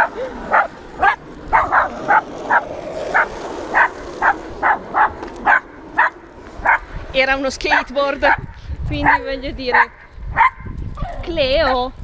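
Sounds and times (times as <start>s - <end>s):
small dog barking: 0.5s - 6.8s, 9.0s - 11.2s.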